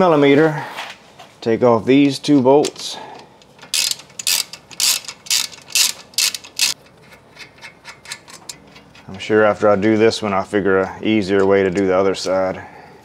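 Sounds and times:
ratchet wrench clicking: 3.6 - 9.1.

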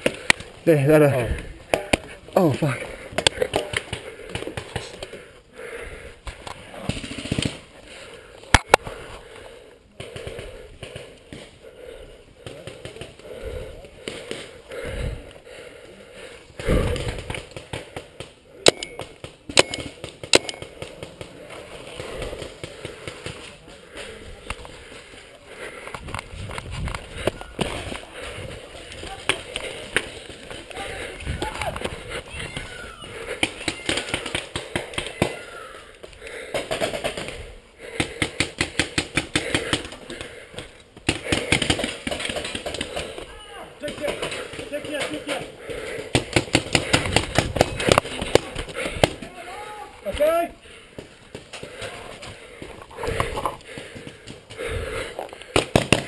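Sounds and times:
paintball marker firing rapidly: 36.5 - 39.9, 41.0 - 43.2, 43.9 - 49.3, 55.5 - 56.0.

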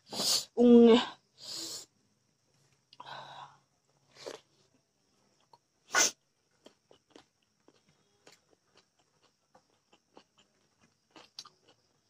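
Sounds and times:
soft chewing: 6.4 - 12.0.

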